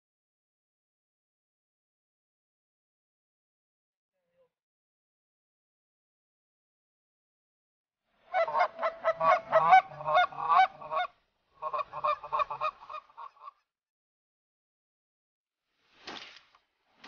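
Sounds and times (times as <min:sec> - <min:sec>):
goose honking: 0:08.3 - 0:13.4.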